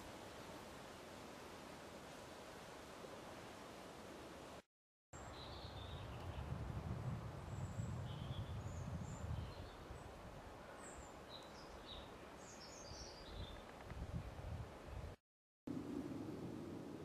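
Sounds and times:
small birds chirping: 0:10.8 - 0:13.9.

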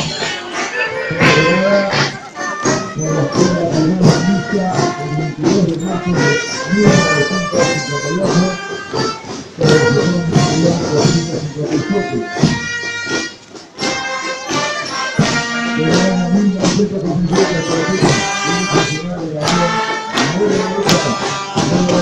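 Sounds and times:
marching band playing: 0:00.0 - 0:22.0.

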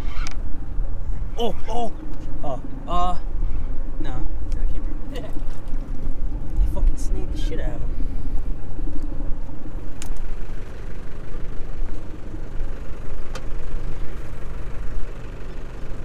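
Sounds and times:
outboard engine idling: 0:07.5 - 0:16.0.

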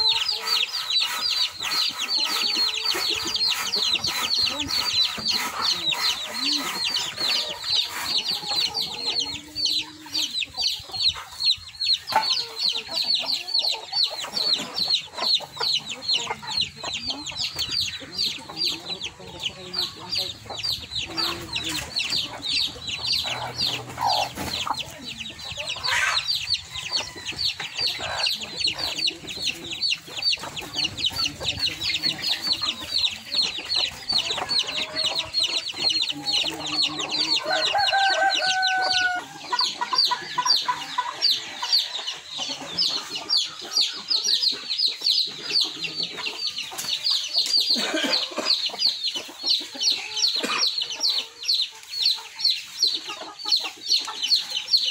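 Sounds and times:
chickens clucking: 0:00.0 - 0:54.9
chicks peeping: 0:00.0 - 0:54.9
rooster crowing: 0:37.4 - 0:39.4.

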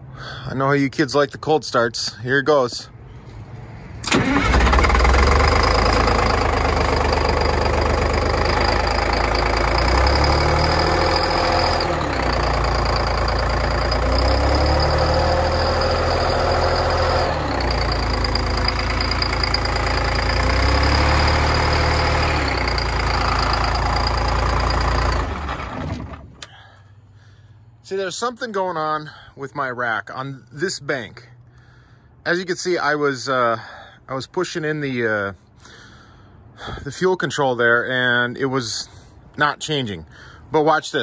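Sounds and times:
diesel bus engine running: 0:04.0 - 0:27.6.

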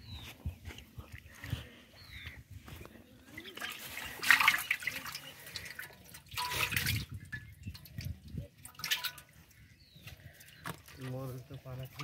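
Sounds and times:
fish thrashing and splashing in pot: 0:03.2 - 0:11.0.

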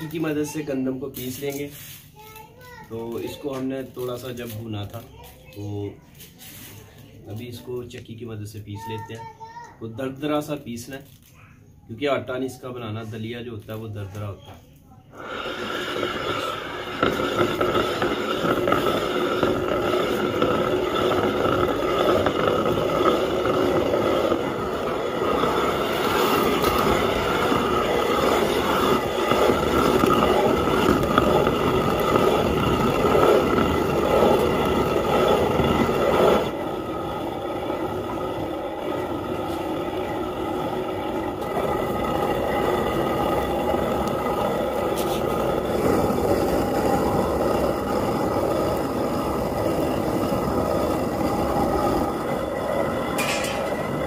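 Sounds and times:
stone quern grinding: 0:15.2 - 0:54.0.

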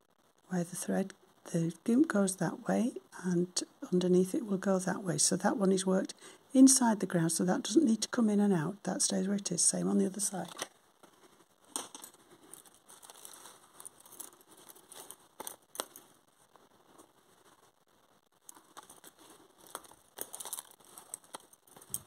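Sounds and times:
threads rustling: 0:09.8 - 0:22.0
lace bobbins clicking: 0:10.2 - 0:22.0.

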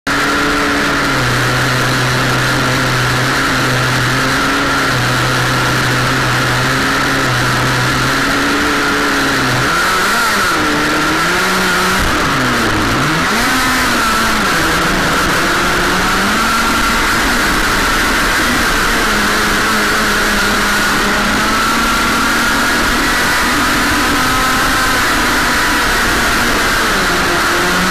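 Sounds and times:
model boat motor running: 0:00.1 - 0:27.9.

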